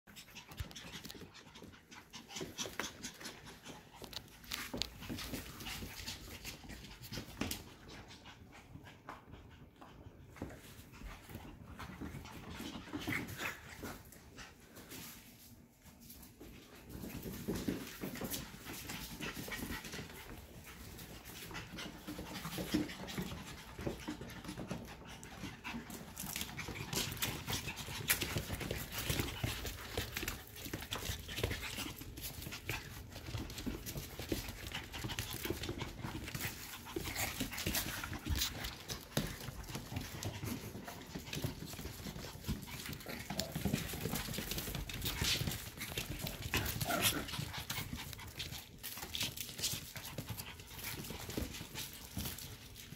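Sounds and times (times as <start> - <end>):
puppies panting: 0.1 - 52.9
claws scrabbling on hard floor: 16.1 - 52.9.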